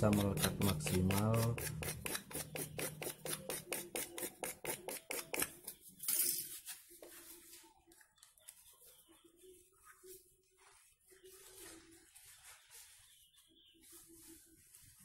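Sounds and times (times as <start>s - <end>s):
blade rasping on plastic pipe: 0.0s - 5.5s.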